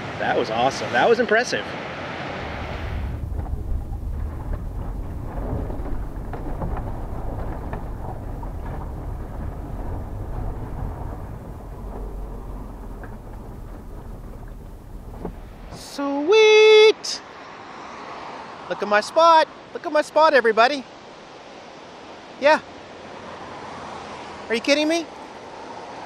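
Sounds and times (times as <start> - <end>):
motorhome engine rumble: 2.4 - 16.0.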